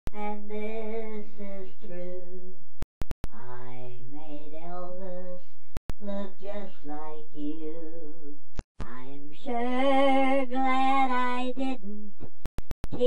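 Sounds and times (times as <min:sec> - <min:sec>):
person singing slow melody: 0:00.1 - 0:02.6.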